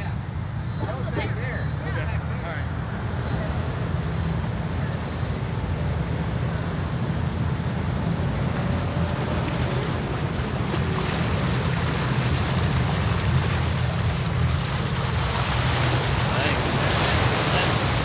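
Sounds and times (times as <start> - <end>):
vehicle engine rumbling: 0.0 - 18.0
wet tyres hissing through water: 5.2 - 18.0.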